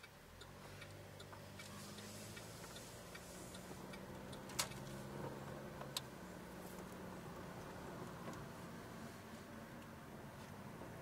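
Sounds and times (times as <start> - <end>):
turn signal ticking: 0.0 - 8.8
low engine hum: 0.0 - 11.0.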